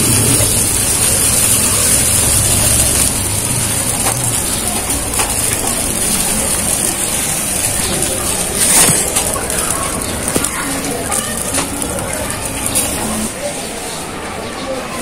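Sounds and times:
meat sizzling on a grill: 0.0 - 13.5
faint fire pops: 0.1 - 13.1.

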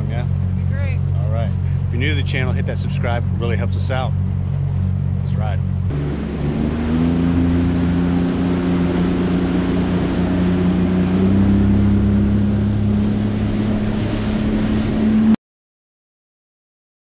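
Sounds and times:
outboard motor accelerating: 0.0 - 15.4
wind: 0.0 - 15.4
rushing water: 5.9 - 15.4.

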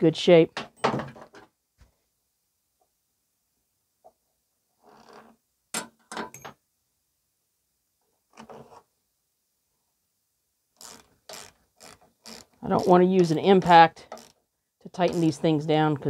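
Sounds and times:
screwdriver clicking and scraping: 10.8 - 12.9, 14.1 - 14.4.

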